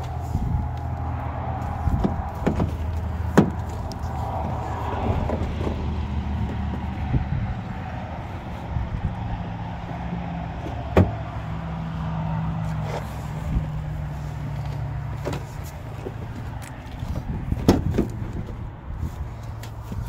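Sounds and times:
engine humming: 0:00.0 - 0:20.0
truck door clicks and knocks: 0:01.9 - 0:04.0, 0:10.6 - 0:11.3, 0:17.2 - 0:18.5.

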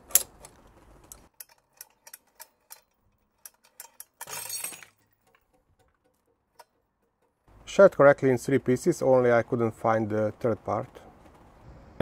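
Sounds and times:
metal hooks clicking and clinking: 0:00.0 - 0:07.4.

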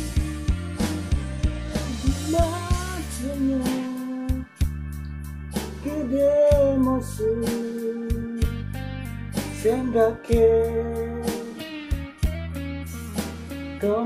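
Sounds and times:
karaoke backing track with drums: 0:00.0 - 0:14.0
man singing: 0:01.8 - 0:04.6, 0:05.8 - 0:08.7, 0:09.5 - 0:11.8, 0:13.8 - 0:14.0.

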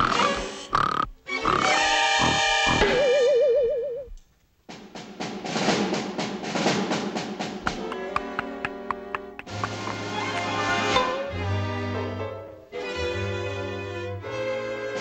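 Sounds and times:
snare drum roll: 0:04.7 - 0:10.6.

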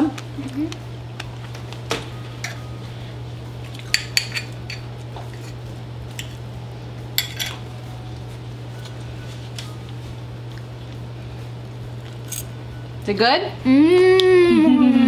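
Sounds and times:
cutlery clinking on plate: 0:07.2 - 0:07.6.

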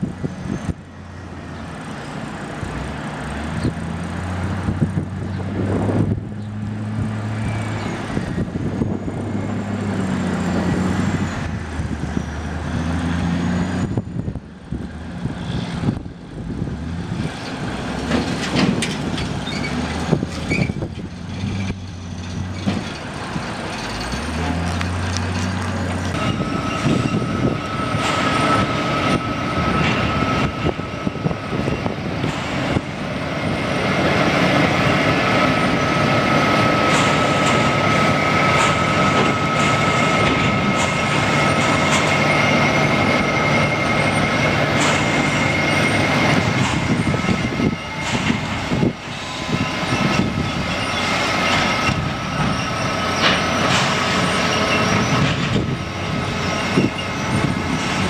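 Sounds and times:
heavy truck engine: 0:00.0 - 0:58.0
knocks and clunks: 0:18.0 - 0:23.1
high-pitched whine: 0:26.2 - 0:58.0.

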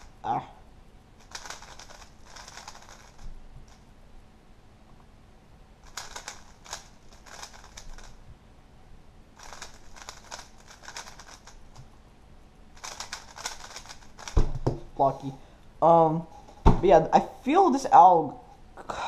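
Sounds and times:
puzzle cube plastic clicking: 0:01.2 - 0:03.8, 0:05.8 - 0:08.2, 0:09.4 - 0:11.9, 0:12.8 - 0:15.3.

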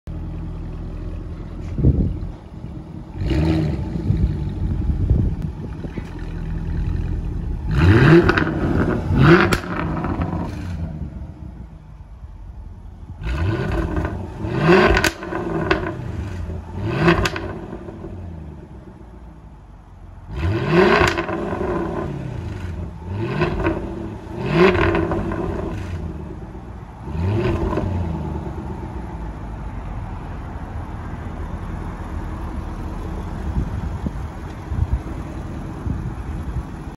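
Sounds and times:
exhaust cracking: 0:00.1 - 0:18.8, 0:20.3 - 0:28.9
car engine idling: 0:00.1 - 0:36.9
car engine revving: 0:00.2 - 0:12.1, 0:12.9 - 0:19.0, 0:20.2 - 0:30.2.

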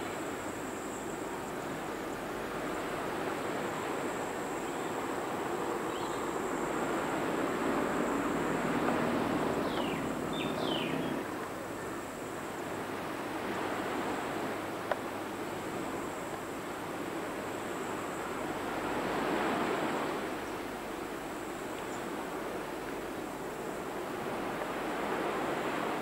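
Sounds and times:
steady background hiss: 0:00.0 - 0:26.0
vehicle engine hum: 0:07.1 - 0:11.3.

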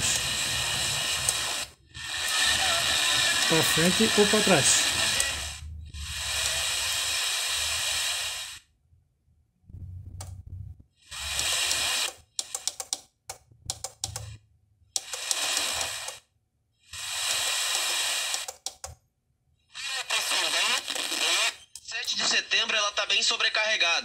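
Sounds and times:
radio static hiss: 0:00.0 - 0:01.7, 0:02.3 - 0:05.6, 0:20.0 - 0:22.8.

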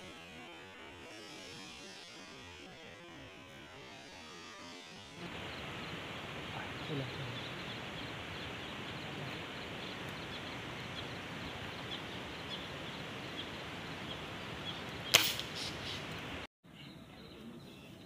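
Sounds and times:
steady outdoor hiss: 0:00.0 - 0:18.0
air rifle shot: 0:15.1 - 0:15.8.

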